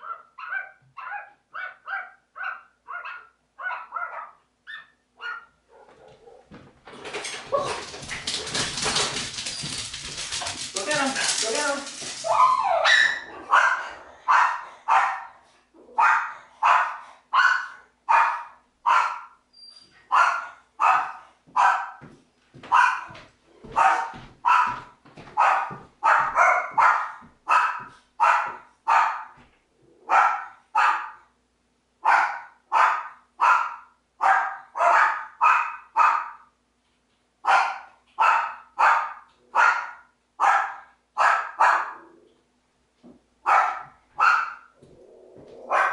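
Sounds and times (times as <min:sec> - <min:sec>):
dog barking: 0:00.0 - 0:06.5, 0:12.3 - 0:15.4, 0:16.0 - 0:19.4, 0:20.1 - 0:22.0, 0:22.7 - 0:24.8, 0:25.4 - 0:29.4, 0:30.1 - 0:31.2, 0:32.0 - 0:36.5, 0:37.4 - 0:42.1, 0:43.4 - 0:44.7, 0:45.6 - 0:45.9.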